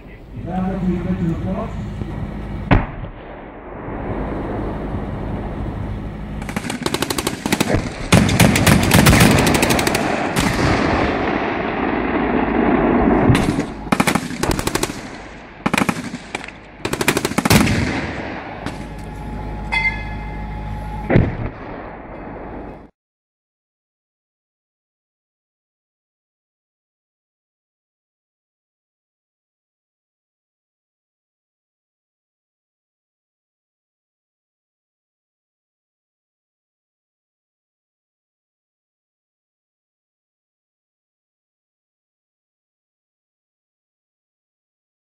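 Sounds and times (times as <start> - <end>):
steady low hum: 0.0 - 22.9
heavy single cannon shots: 2.7 - 4.2, 6.4 - 19.0, 21.1 - 22.4
rapid automatic gunfire: 6.4 - 12.4, 13.3 - 18.8.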